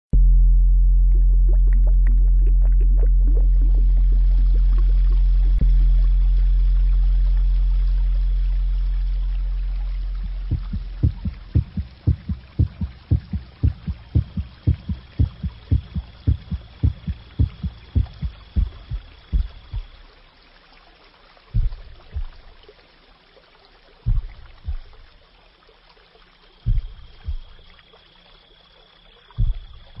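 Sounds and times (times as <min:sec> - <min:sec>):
heartbeat thumps: 0:00.2 - 0:20.0, 0:21.6 - 0:22.6, 0:24.1 - 0:25.1, 0:26.7 - 0:27.8, 0:29.4 - 0:30.0.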